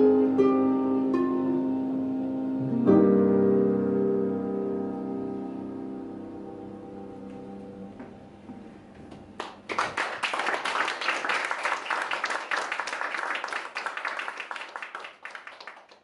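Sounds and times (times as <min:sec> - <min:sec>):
clarinet guitar and piano chord: 0:00.0 - 0:08.9
audience applauding: 0:09.4 - 0:16.0.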